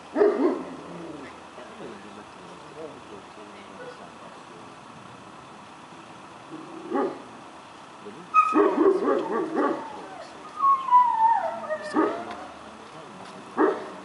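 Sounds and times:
dog whining and yelping: 0:08.3 - 0:12.5.

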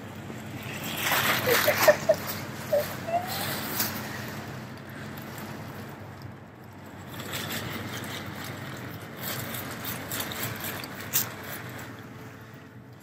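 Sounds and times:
nylon fabric rustling and crinkling: 0:00.4 - 0:04.4.

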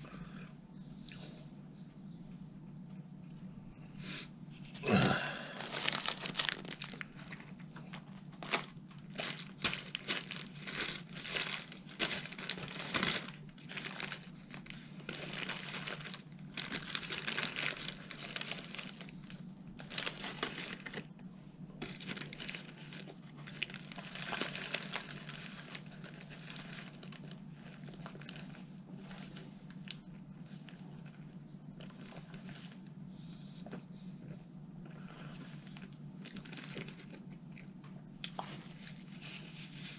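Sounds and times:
steady low hum: 0:00.0 - 0:39.9
paper wrapper crinkling: 0:05.2 - 0:21.1, 0:21.8 - 0:30.0, 0:35.5 - 0:37.2, 0:38.3 - 0:39.9.

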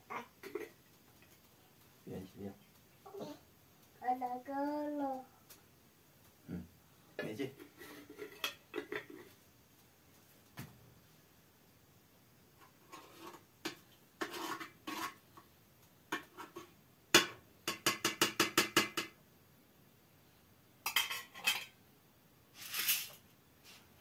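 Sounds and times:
metal spoon scraping metal pot: 0:07.6 - 0:09.2, 0:14.2 - 0:15.2.

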